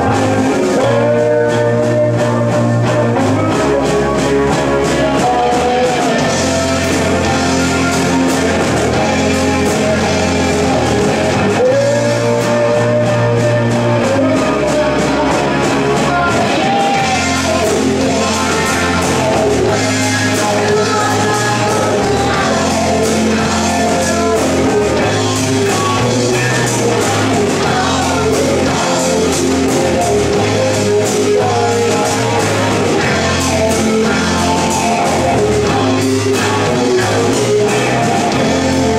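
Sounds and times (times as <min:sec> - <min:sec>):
bass guitar: 0:00.0 - 0:38.9
drum kit: 0:00.0 - 0:38.9
electric guitar: 0:00.0 - 0:38.9
person singing: 0:00.0 - 0:38.9.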